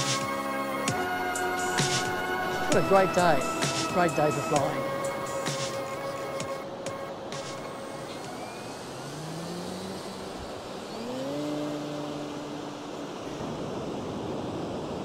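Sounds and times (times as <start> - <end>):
surf: 0.0 - 15.0
wind hiss: 0.0 - 15.0
model plane motor whine: 6.0 - 13.8.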